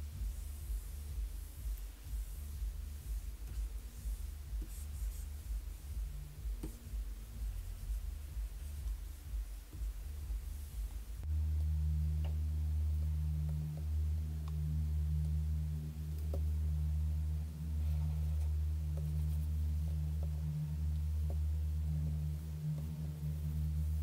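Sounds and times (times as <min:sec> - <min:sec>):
low hum: 0:00.0 - 0:24.0.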